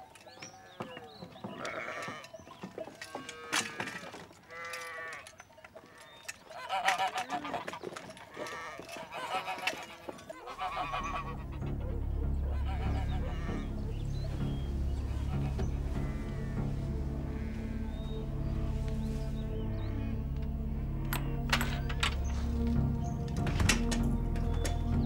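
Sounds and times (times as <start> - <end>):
livestock bleating: 1.5 - 2.3, 3.1 - 7.6, 8.3 - 11.4, 12.4 - 13.8, 15.0 - 20.2
low sustained music: 8.8 - 25.0.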